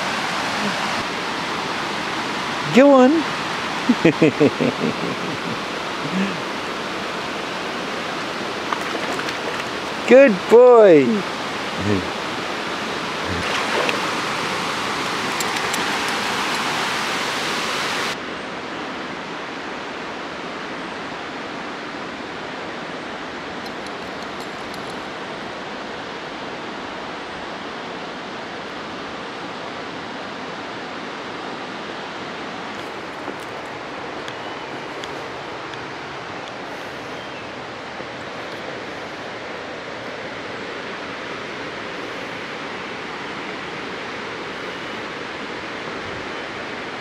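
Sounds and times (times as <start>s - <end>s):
river water rushing over weir: 0.0s - 47.0s
water splashing at edge: 8.1s - 10.1s, 13.2s - 17.6s.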